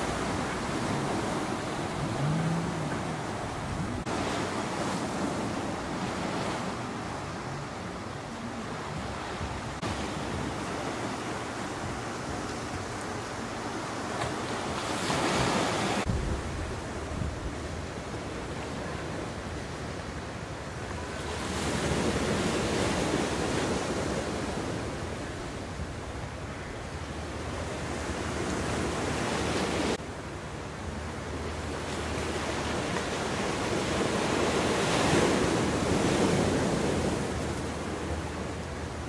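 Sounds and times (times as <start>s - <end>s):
wind rushing over microphone: 0.0s - 7.2s, 15.5s - 18.4s
sea waves washing: 0.0s - 39.0s.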